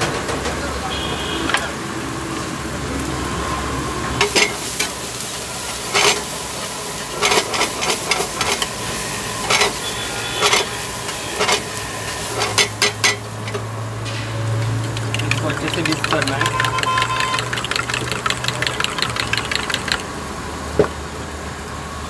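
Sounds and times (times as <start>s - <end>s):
food sizzling in frying pan: 4.2s - 13.3s, 14.4s - 20.2s.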